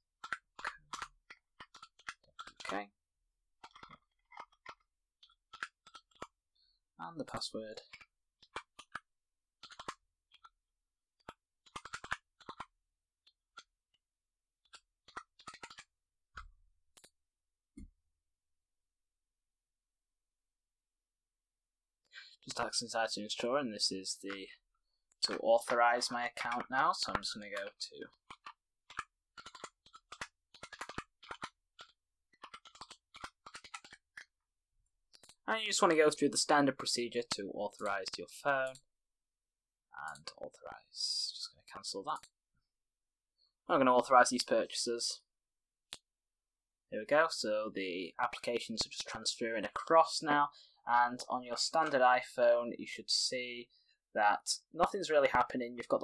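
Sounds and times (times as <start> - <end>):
typing on computer keyboard: 9.6 - 10.5, 11.7 - 12.7, 28.3 - 34.3.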